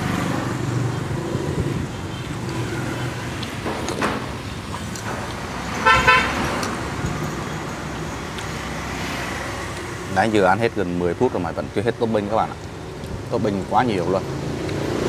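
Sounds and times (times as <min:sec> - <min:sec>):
vehicle horn toot: 0:05.8 - 0:06.4.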